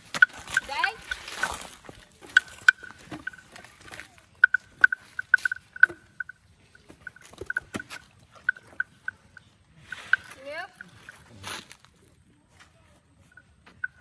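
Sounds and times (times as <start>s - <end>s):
wooden bell clonking: 2.2s - 9.4s.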